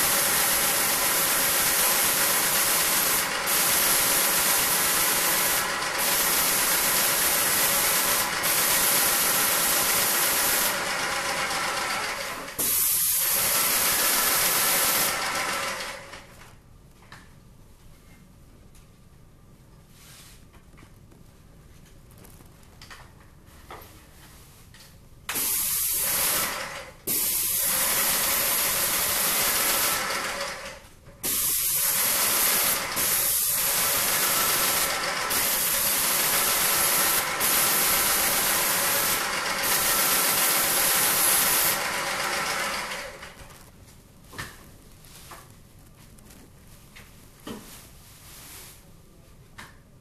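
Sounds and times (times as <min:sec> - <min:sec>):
paint spray gun hissing: 0:00.0 - 0:11.1, 0:12.6 - 0:15.6, 0:25.3 - 0:30.5, 0:31.2 - 0:43.1.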